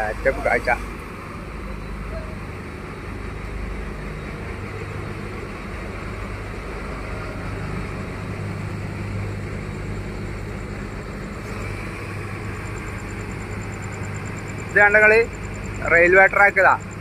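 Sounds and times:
large engine idling: 0.0 - 17.0.

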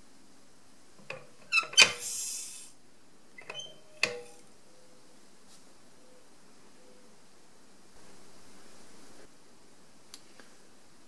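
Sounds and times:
powder pouring hiss: 1.9 - 2.8.

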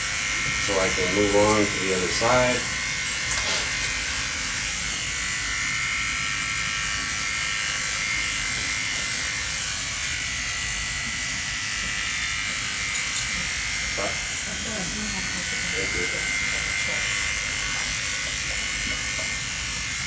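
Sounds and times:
electric clipper whining: 0.0 - 20.0.

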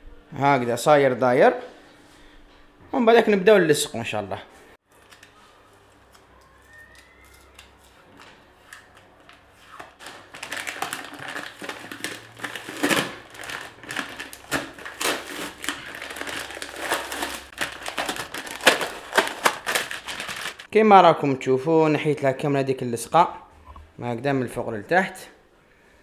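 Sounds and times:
vinyl sticker crinkling: 5.0 - 20.7.

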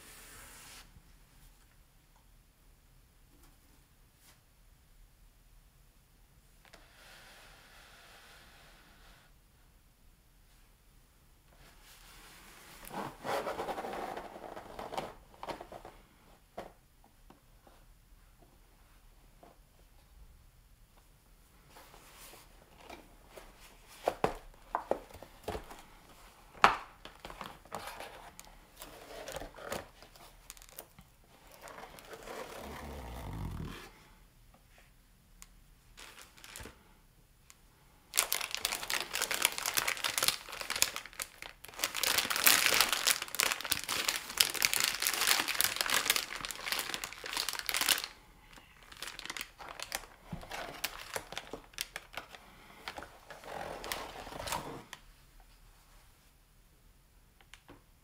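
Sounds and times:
packaging crinkling and tearing: 26.6 - 32.7, 36.0 - 36.8, 38.1 - 54.7.

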